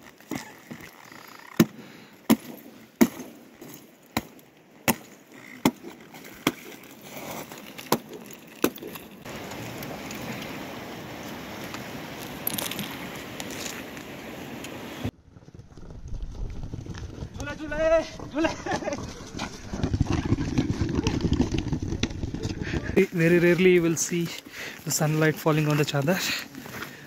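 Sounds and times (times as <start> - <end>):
river water rushing: 9.3 - 15.1.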